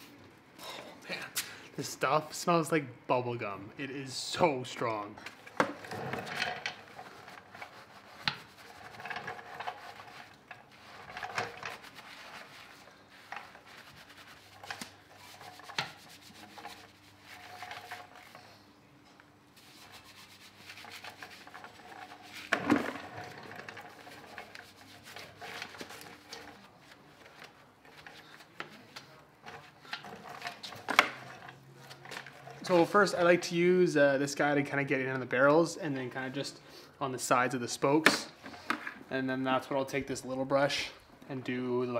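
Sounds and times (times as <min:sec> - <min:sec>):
brush scrubbing car wheel: 0:07.0 - 0:18.4, 0:19.5 - 0:27.1.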